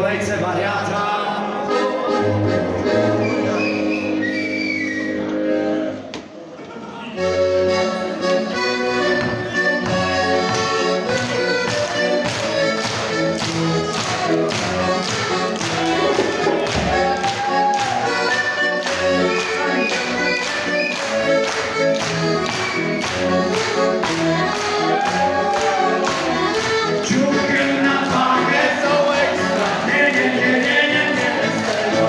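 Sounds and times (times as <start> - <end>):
piano accordion: 1.0 - 6.3, 7.0 - 32.0
person singing into microphone: 27.0 - 32.0.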